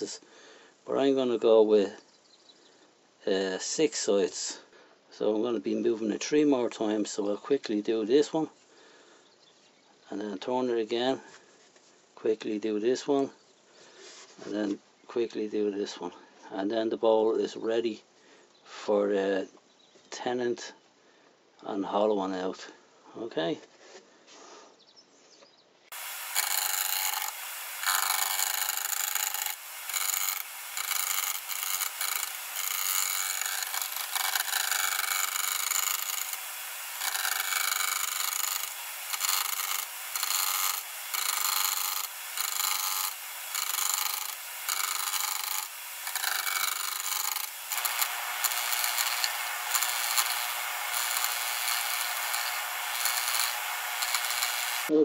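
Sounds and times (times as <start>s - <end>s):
gouge cutting wood on a lathe: 25.9s - 54.9s
lathe motor hum: 25.9s - 54.9s.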